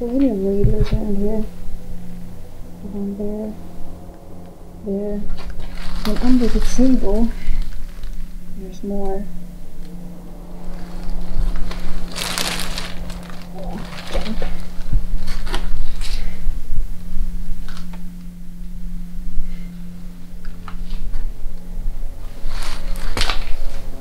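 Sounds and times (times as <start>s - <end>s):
electrical mains hum: 0.0s - 24.0s
rustling and crinkling: 5.3s - 8.4s, 10.6s - 16.4s, 22.2s - 24.0s.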